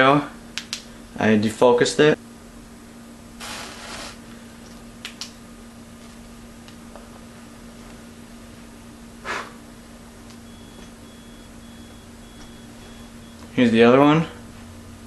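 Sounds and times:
steady low hum: 0.0 - 15.0
match flaring with a hiss: 3.4 - 4.2.

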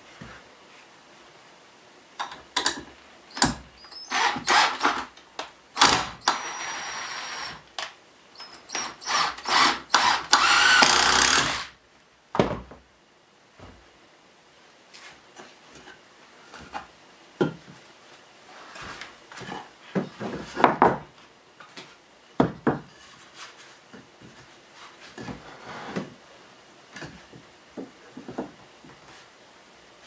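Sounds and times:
wooden boards knocking: 20.4 - 21.1.

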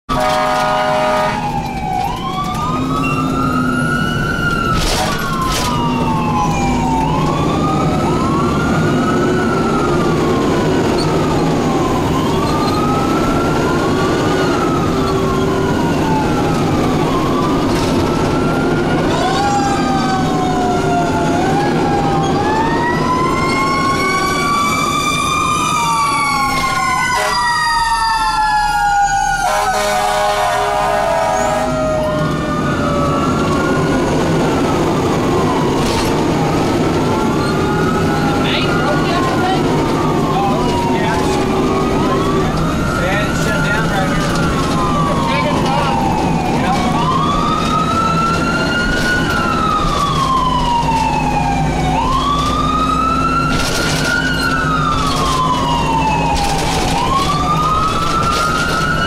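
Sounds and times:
fire engine siren wailing: 0.1 - 59.0
truck engine and road rumble: 0.1 - 59.0.

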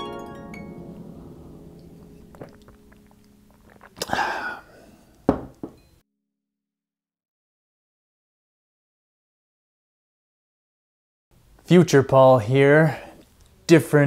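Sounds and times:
plucked harp-like notes: 0.0 - 4.0
person slurping drink: 2.3 - 5.0
mug set down with thunk: 5.3 - 5.8.

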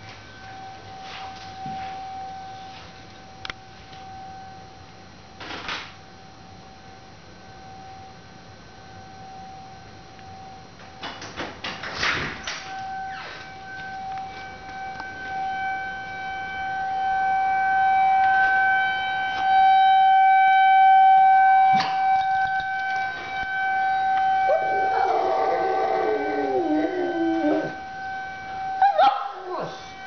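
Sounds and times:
warning siren wailing: 0.0 - 4.8, 12.4 - 30.0
dog howling: 24.5 - 27.8, 28.8 - 30.0.

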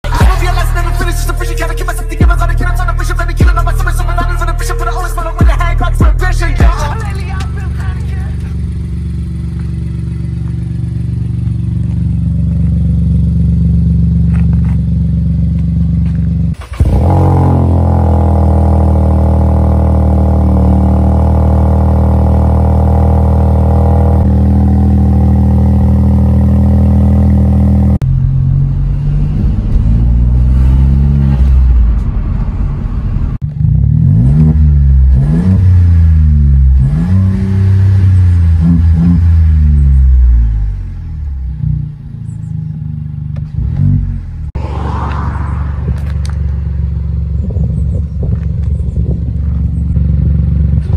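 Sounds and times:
car engine revving: 0.0 - 50.9.

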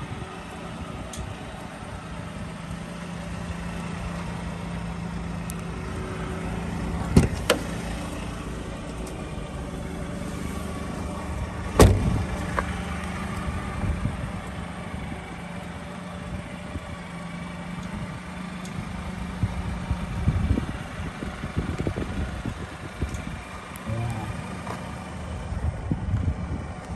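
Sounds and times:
truck engine idling: 0.0 - 26.8.

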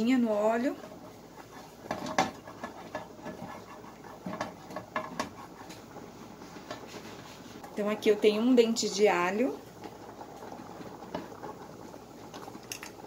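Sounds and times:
spatula scraping frying pan: 0.4 - 7.6.

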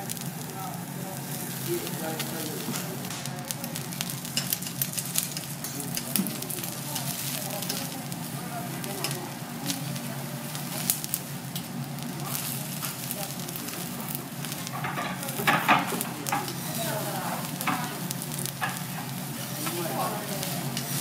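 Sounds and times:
pepper sizzling on griddle: 0.0 - 21.0.

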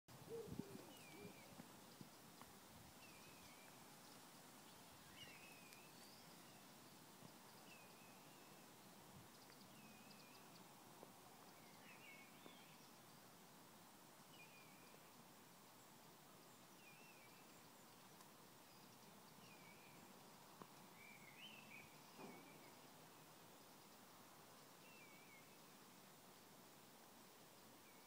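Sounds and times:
songbird warbling: 0.2 - 1.6.

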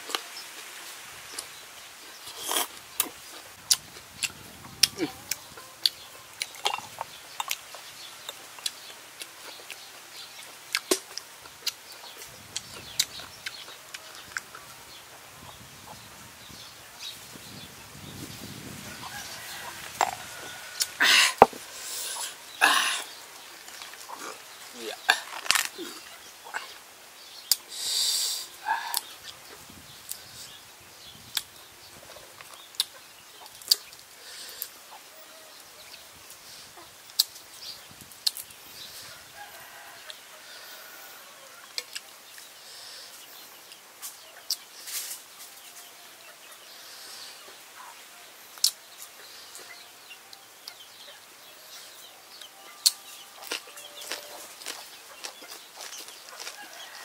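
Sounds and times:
chickens clucking: 18.4 - 26.8, 38.3 - 57.0.

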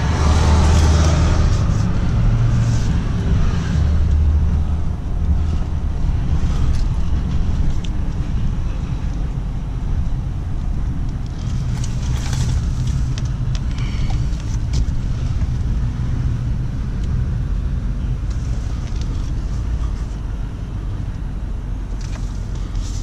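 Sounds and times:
pickup engine low rumble: 0.0 - 23.0.

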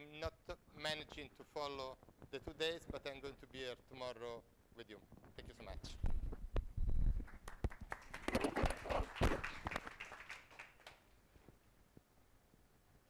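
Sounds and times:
small audience applauding: 7.2 - 11.1.

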